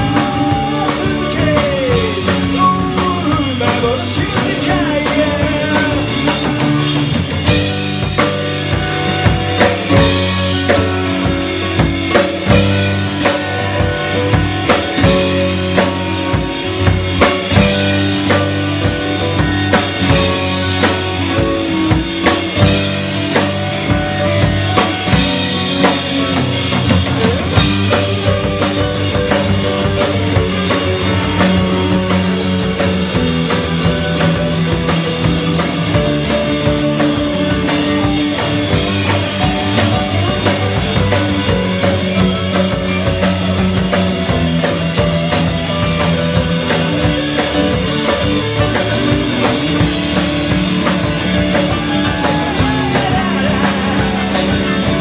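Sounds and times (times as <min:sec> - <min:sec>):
bass guitar: 0:00.0 - 0:55.0
drum kit: 0:00.0 - 0:55.0
electric and acoustic guitars: 0:00.0 - 0:55.0.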